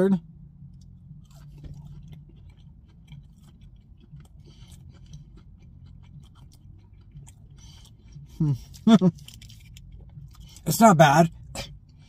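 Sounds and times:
steady low hum: 0.0 - 12.0
person chewing crispy food: 0.6 - 12.0.

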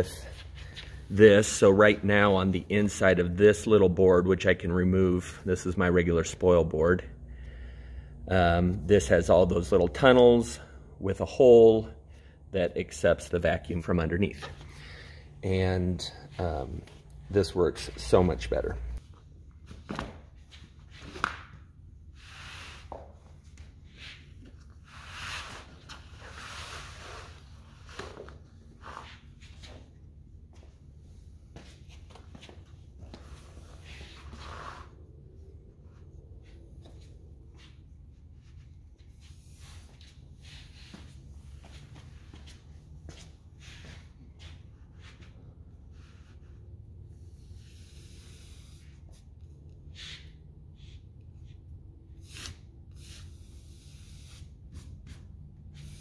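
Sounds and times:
steady low hum: 0.0 - 56.0
hands smoothing material sheet: 22.2 - 29.8, 33.0 - 35.1.

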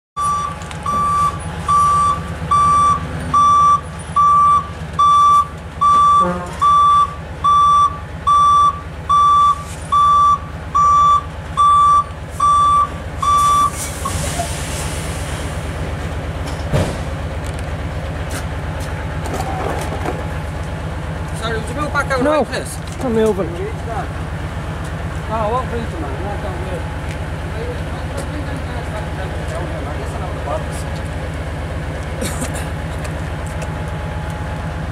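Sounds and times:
reversing alarm beeping: 0.2 - 14.5
diesel engine running: 0.2 - 34.9.

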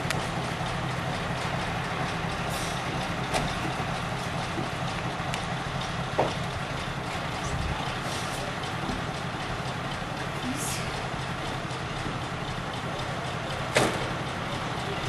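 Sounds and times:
diesel engine idling: 0.0 - 15.0
sharp clicks and knocks: 2.7 - 7.2, 13.6 - 14.6.

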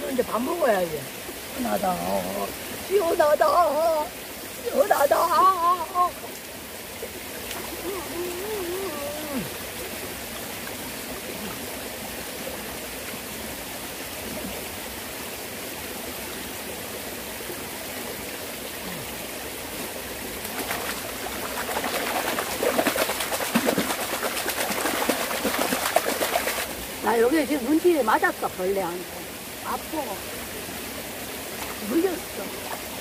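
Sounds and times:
stream flowing: 0.0 - 33.0
hand splashing water: 20.5 - 26.7.

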